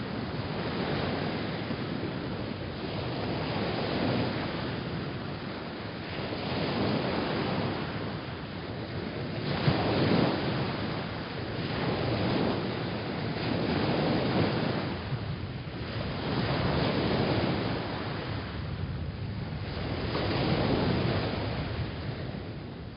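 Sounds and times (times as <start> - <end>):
ocean waves washing in: 0.0 - 22.9.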